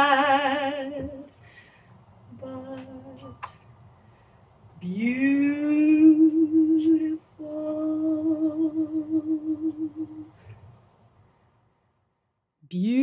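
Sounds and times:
person singing a cappella: 0.0s - 1.4s, 2.3s - 3.6s, 4.8s - 10.4s, 12.7s - 13.0s.

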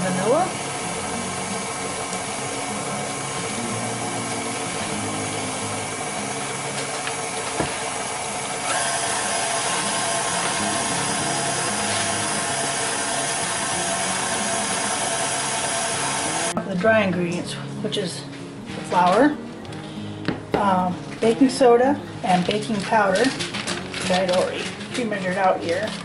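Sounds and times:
stand mixer running: 0.0s - 16.6s.

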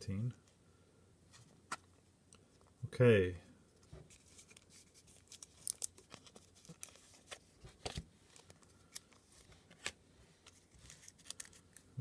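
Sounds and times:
sleeved cards rustling and clicking: 3.7s - 12.0s.

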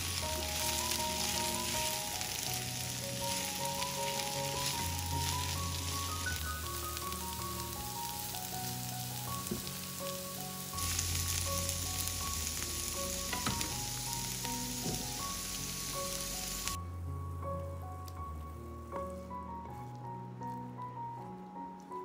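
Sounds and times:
vegetables sizzling in oil: 0.0s - 16.8s
soft background music: 0.0s - 22.0s.

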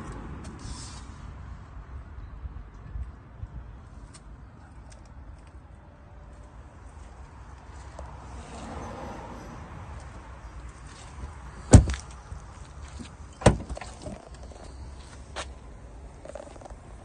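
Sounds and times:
car door thud: 11.7s - 12.1s, 13.4s - 14.0s.

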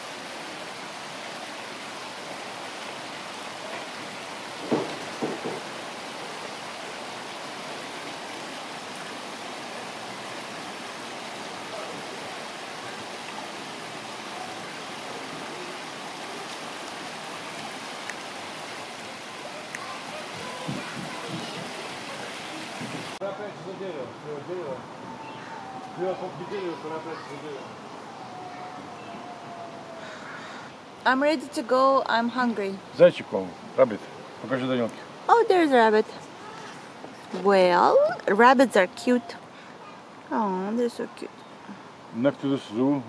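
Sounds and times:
running water: 0.0s - 43.0s
sharp knocks: 4.6s - 5.7s.

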